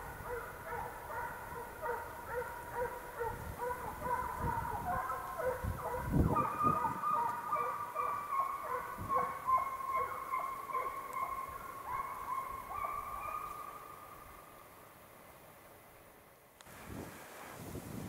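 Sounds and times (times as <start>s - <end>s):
hounds baying: 0.0s - 14.0s.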